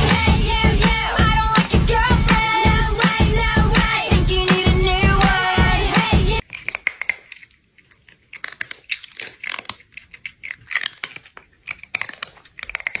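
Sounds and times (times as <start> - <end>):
crunchy chewing: 6.4 - 13.0.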